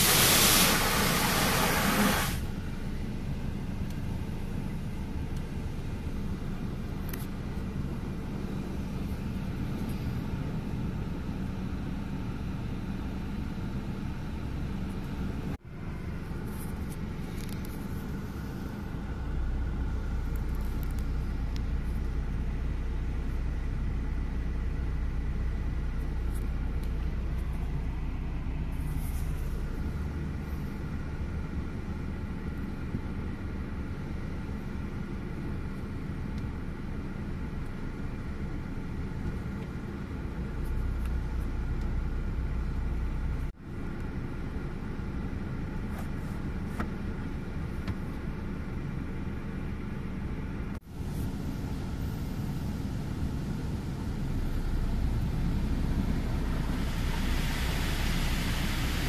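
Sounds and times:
water spray hissing: 0.0s - 2.5s, 54.5s - 59.0s
car wash rumble and hum: 0.0s - 59.0s.

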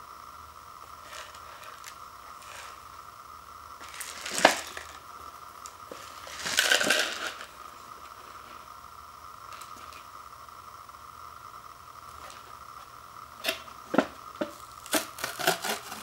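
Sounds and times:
paper cup crackling: 3.8s - 5.0s, 5.6s - 7.6s.

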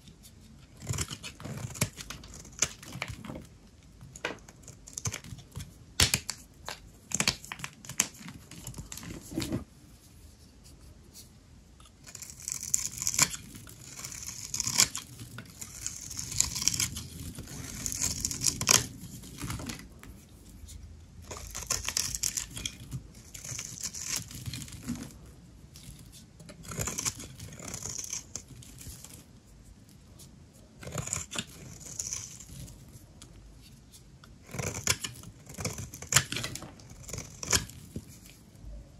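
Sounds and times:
knife scraping through soap: 0.3s - 3.4s, 11.8s - 25.2s, 25.8s - 29.2s, 30.8s - 33.2s, 34.4s - 38.4s.

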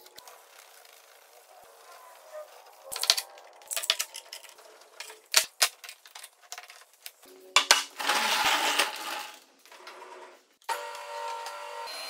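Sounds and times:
wood and tools clicking and knocking: 2.5s - 10.2s.

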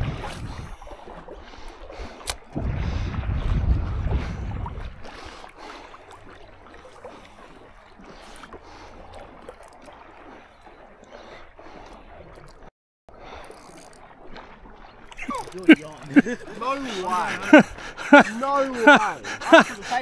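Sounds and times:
water lapping and gurgling: 0.0s - 20.0s.

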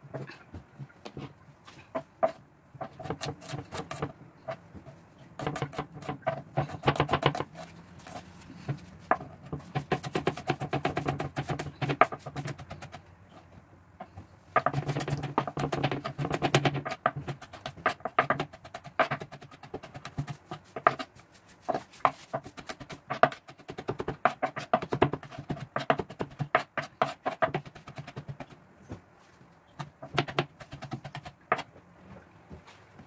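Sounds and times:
knife chopping on cutting board: 2.0s - 4.6s, 5.4s - 8.2s, 9.1s - 12.9s, 14.6s - 21.1s, 21.7s - 28.5s, 29.8s - 31.7s.

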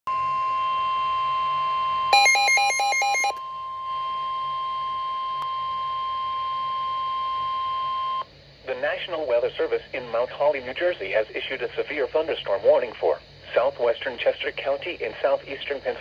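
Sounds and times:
weather radio alarm tone: 2.1s - 3.4s
rapid alternating beeps: 2.2s - 3.3s.

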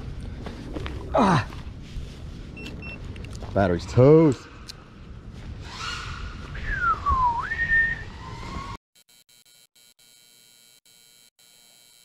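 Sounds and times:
wind rumbling on microphone: 0.0s - 8.8s
person whistling: 6.6s - 8.8s
faint electronic buzz: 9.0s - 12.0s.

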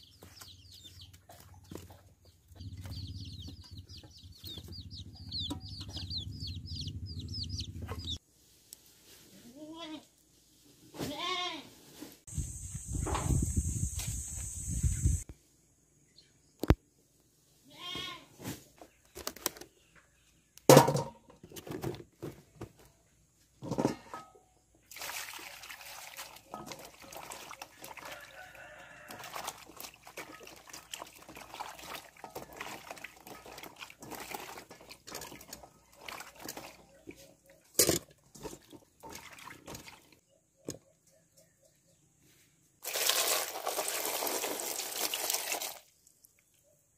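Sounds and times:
water splashing in steel basin: 24.9s - 36.9s, 38.3s - 40.2s, 42.8s - 46.0s.

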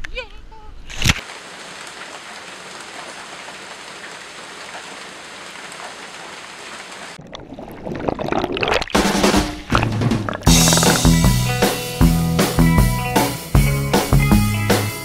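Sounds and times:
steady rain falling: 1.2s - 7.2s.

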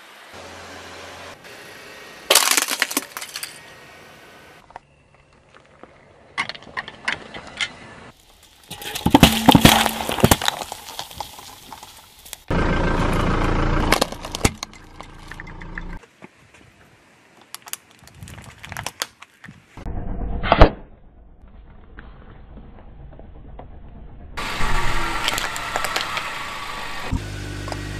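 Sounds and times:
objects crunching under car tyre: 2.3s - 3.7s, 4.7s - 15.6s, 17.4s - 19.9s, 24.4s - 27.9s.

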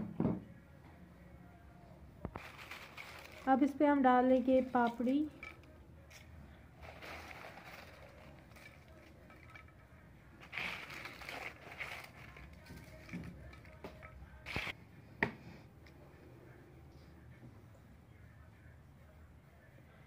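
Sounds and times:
crisp wafers crunching: 2.3s - 3.5s, 6.8s - 9.3s, 10.4s - 13.1s.

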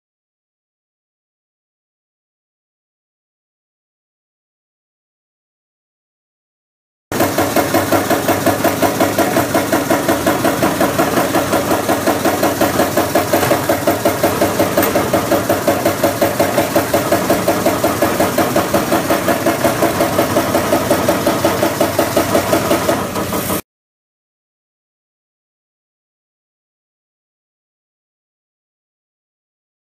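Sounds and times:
sewing machine running: 7.1s - 23.6s.

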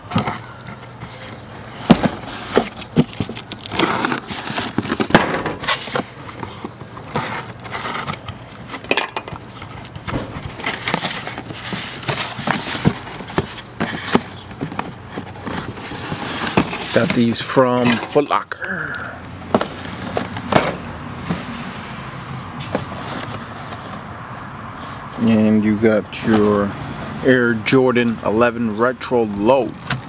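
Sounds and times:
cardboard box scraping and crinkling: 0.0s - 18.3s, 21.2s - 25.1s, 26.2s - 27.5s.

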